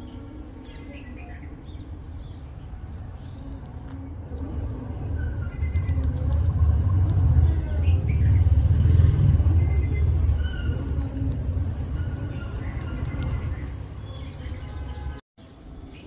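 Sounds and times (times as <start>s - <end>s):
passing vehicle rumble: 3.9s - 15.2s.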